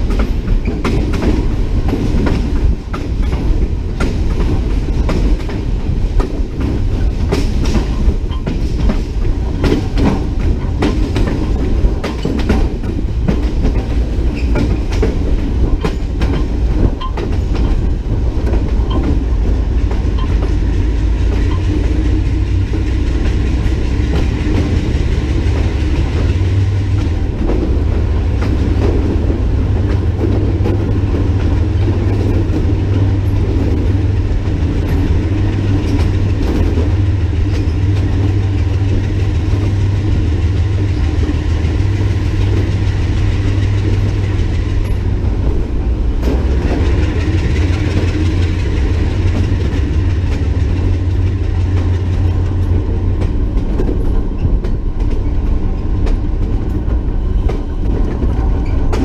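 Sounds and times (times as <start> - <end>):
locomotive engine drone: 0.0 - 59.0
train wheels clacking over rail joints: 0.0 - 59.0.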